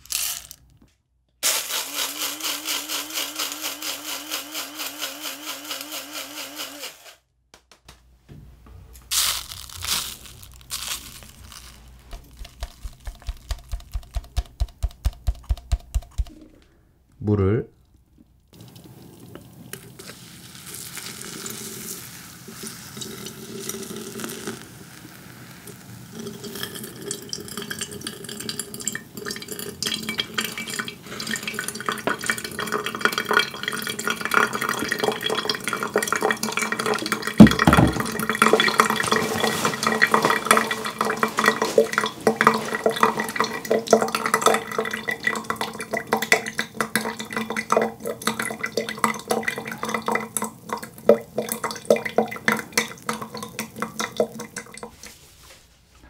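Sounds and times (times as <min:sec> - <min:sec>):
water pouring from kettle: 0:18.6 - 0:55.2
water trickling and dripping: 0:26.2 - 0:55.2
thump: 0:37.4 - 0:38.2.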